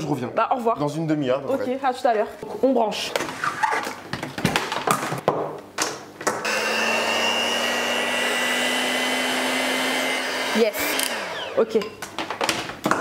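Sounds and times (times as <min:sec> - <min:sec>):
electric hand mixer whine: 0:06.4 - 0:11.8.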